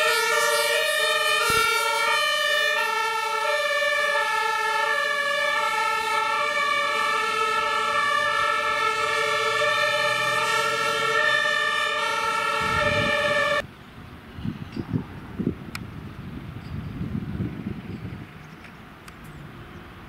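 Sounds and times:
two-tone fire siren: 0.0 - 13.6
truck engine rumbling: 0.0 - 20.0.

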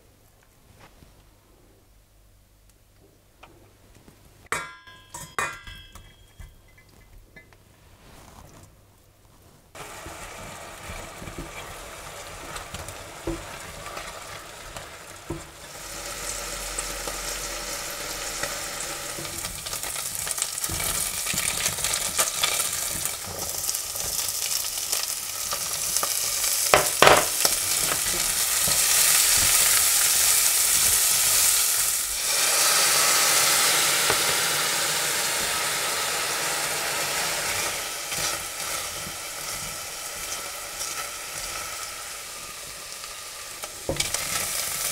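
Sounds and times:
meat sizzling in hot oil: 9.8 - 44.9.

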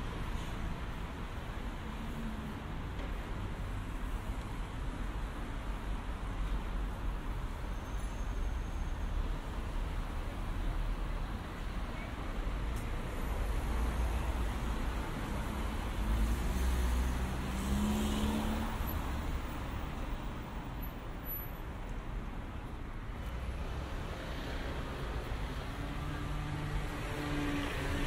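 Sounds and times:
cars driving by: 0.0 - 28.0
low traffic rumble: 8.4 - 28.0.

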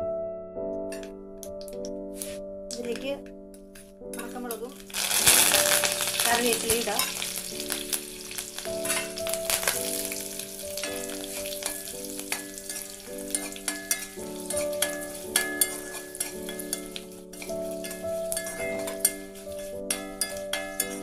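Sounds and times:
soft background music: 0.0 - 21.0
chillies sizzling in hot oil: 4.2 - 21.0
metal spatula clicking on pan: 10.8 - 21.0.

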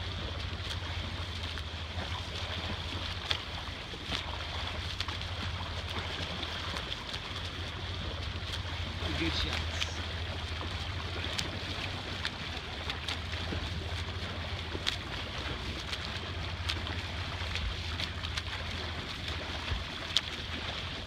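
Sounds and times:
swimmer splashing: 0.0 - 21.0
water slapping hull: 0.0 - 21.0.

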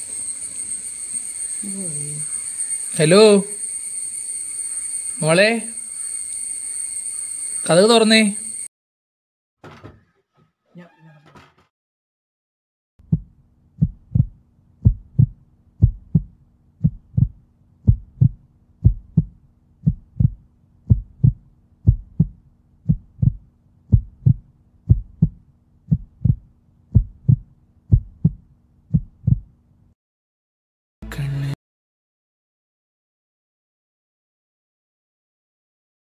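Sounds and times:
heartbeat double thumps: 13.0 - 29.6.

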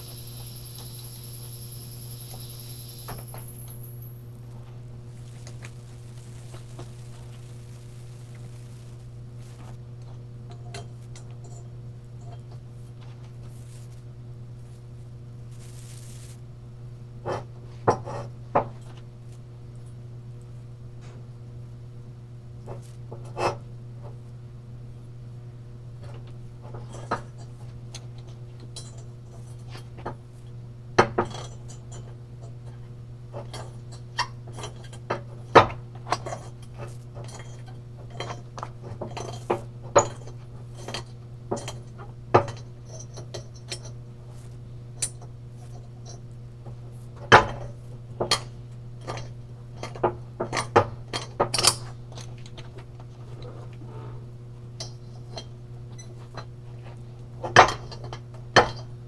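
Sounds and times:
steady low hum: 0.0 - 29.7.

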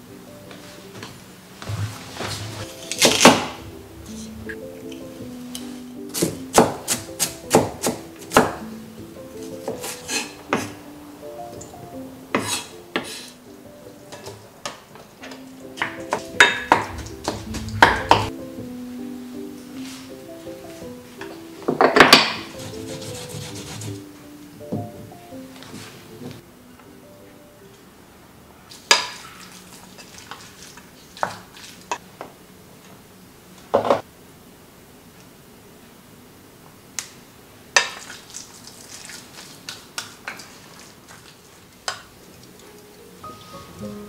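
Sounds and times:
soft background music: 0.0 - 28.4, 42.4 - 44.0.

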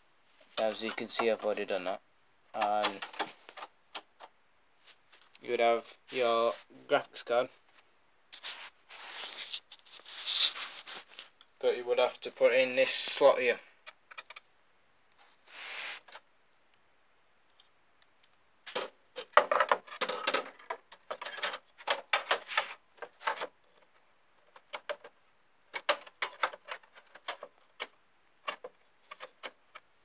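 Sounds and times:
soft rustle: 4.7 - 13.9, 15.1 - 16.3
graphics card clicking and rattling: 25.7 - 27.9.

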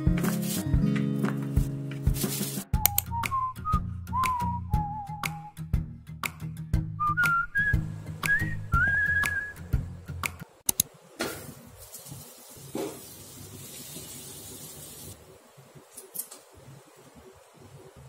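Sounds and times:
whistled music tune: 2.7 - 5.7, 6.9 - 9.8.

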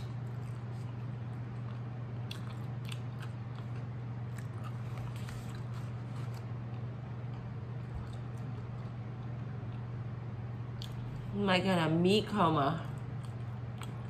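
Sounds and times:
steady low hum: 0.0 - 14.0
mouth chewing food: 0.3 - 9.9, 12.9 - 14.0.

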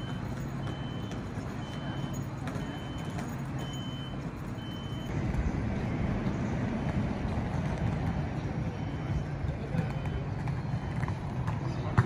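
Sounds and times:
faint high beep: 0.0 - 5.1, 8.6 - 11.3
distant traffic rumble: 0.0 - 12.0.

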